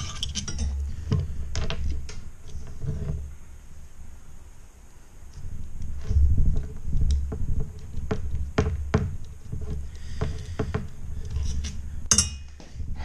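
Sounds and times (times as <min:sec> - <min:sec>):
low rumble: 0:05.4 - 0:09.0
sharp metallic clink: 0:12.1 - 0:12.5.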